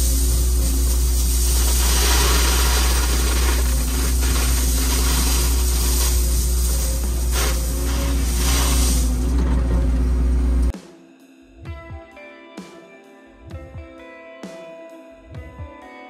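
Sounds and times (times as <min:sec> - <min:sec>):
diesel engine droning: 0:00.0 - 0:10.7
crushed stone pouring from bucket: 0:00.2 - 0:10.0.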